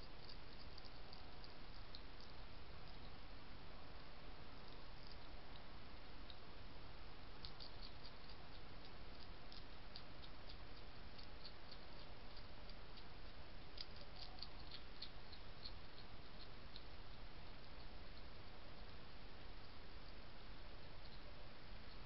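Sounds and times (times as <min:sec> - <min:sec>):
steady background hiss: 0:00.0 - 0:22.0
hedgehog crunching biscuits: 0:07.3 - 0:19.0.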